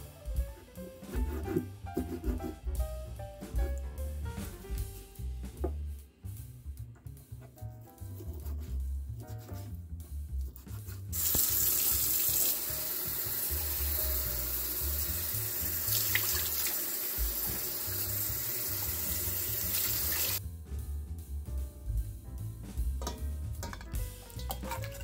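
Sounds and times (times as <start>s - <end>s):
background music with low beat: 0.0s - 15.6s, 17.2s - 19.6s, 20.4s - 25.0s
tap water running into sink: 11.2s - 20.4s, 23.0s - 25.0s.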